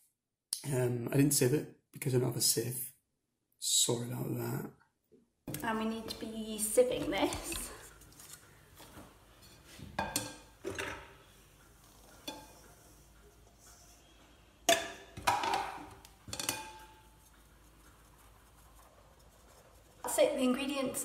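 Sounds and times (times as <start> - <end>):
metal sieve clanking on bowl: 9.4 - 11.2, 14.7 - 17.2.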